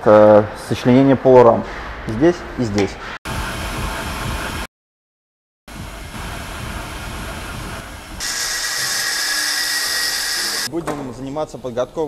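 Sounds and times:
line boring machine running: 5.8 - 10.7
angle grinder grinding steel: 8.2 - 10.7.

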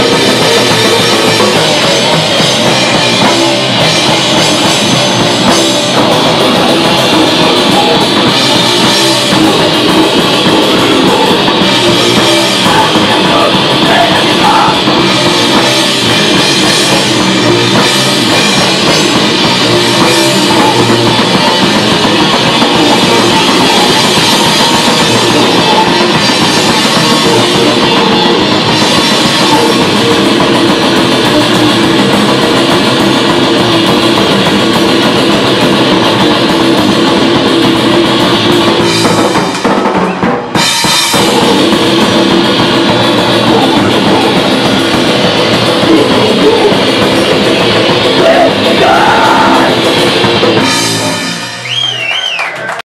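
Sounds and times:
rock band playing live: 0.0 - 52.8.

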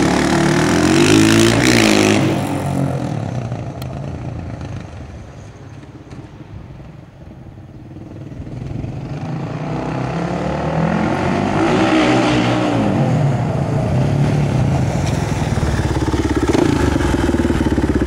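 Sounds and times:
quad engine revving: 0.0 - 4.0, 8.6 - 18.0.

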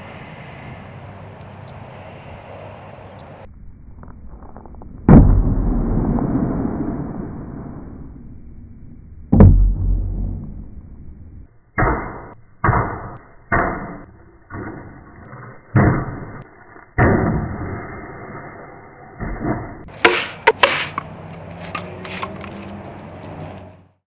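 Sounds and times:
sword swooshing and hitting targets: 19.9 - 22.4.

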